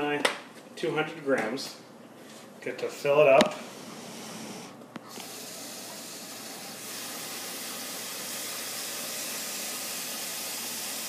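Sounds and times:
faucet water filling plastic bottle: 5.1s - 11.0s.

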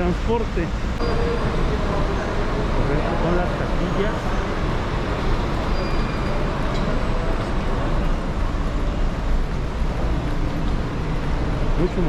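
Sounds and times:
general bustle: 0.0s - 12.0s
road traffic rumble: 0.0s - 12.0s
vehicles idling: 0.0s - 12.0s.

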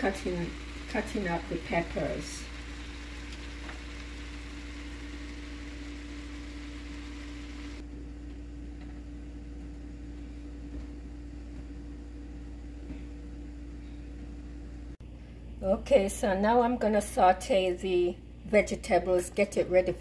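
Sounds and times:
steam hissing and sizzling: 0.0s - 7.8s
steady low hum: 0.0s - 20.0s.

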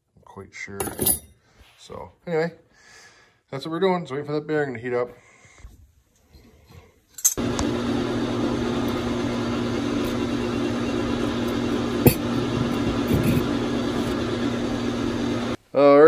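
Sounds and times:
metal clink on wooden bench: 0.8s - 1.3s
machine hum with rushing air: 7.4s - 15.6s.

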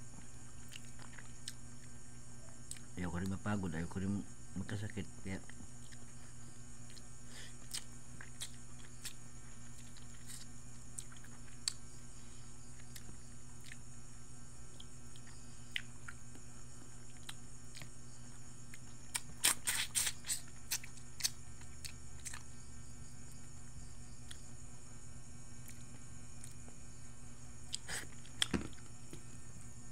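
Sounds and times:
steady hum: 0.0s - 29.9s
person chewing food: 0.2s - 2.0s, 2.6s - 3.3s, 5.8s - 6.2s, 6.8s - 11.8s, 12.6s - 13.8s, 14.7s - 22.5s, 25.6s - 26.7s, 27.6s - 29.4s.

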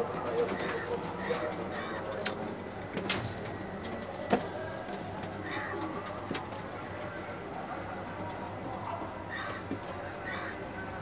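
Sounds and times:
pigeons cooing: 0.0s - 2.7s, 5.3s - 7.0s.

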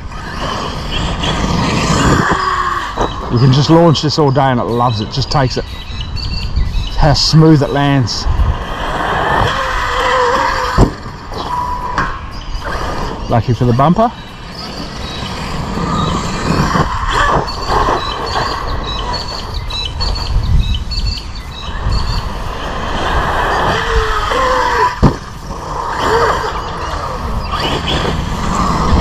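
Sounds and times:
rc car motor whine: 0.0s - 4.2s, 5.2s - 29.0s
tyres rumbling on grass and dirt: 0.0s - 5.6s.

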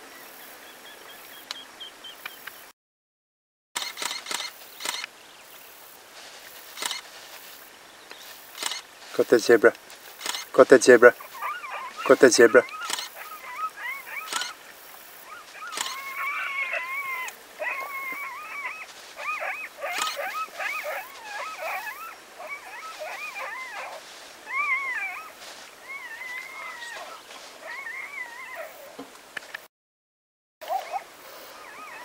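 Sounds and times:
animal whining calls: 10.2s - 29.0s, 30.6s - 32.0s.

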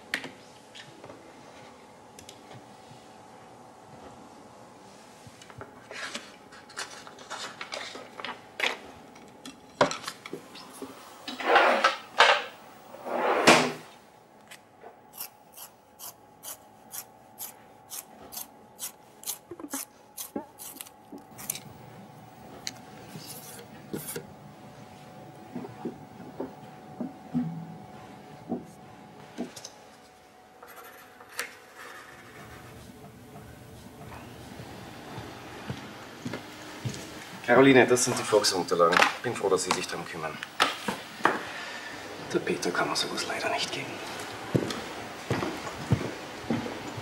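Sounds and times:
loud scraping rubs: 11.3s - 12.1s, 12.9s - 13.9s.

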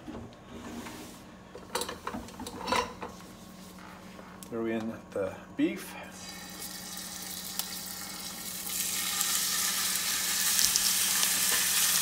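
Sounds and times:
beef sizzling in oil: 6.4s - 12.0s
oil crackles: 6.5s - 12.0s.

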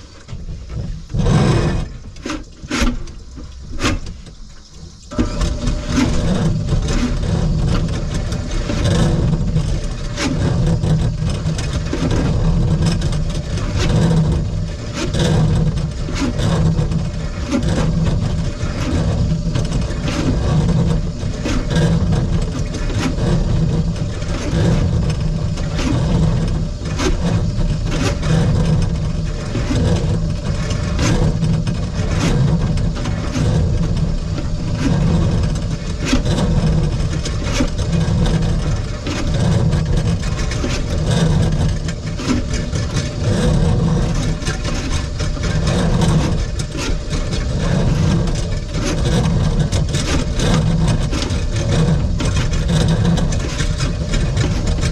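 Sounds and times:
drain-cleaning machine running: 0.0s - 54.9s
spinning cable rattling and clicking: 5.1s - 54.9s.

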